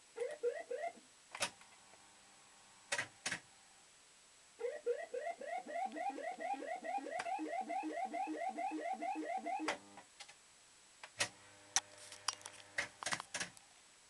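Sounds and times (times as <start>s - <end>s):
rapid rising electronic bleeps: 4.7s - 9.7s.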